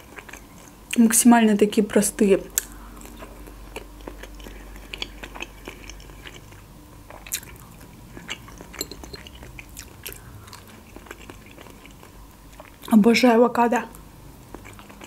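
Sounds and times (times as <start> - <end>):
person chewing: 0.0 - 0.8, 2.6 - 12.9, 14.5 - 15.0.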